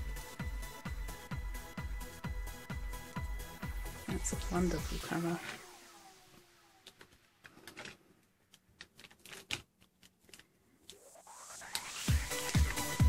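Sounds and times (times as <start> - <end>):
background music: 0.0 - 6.8, 11.2 - 13.0
rising swish: 10.9 - 12.4.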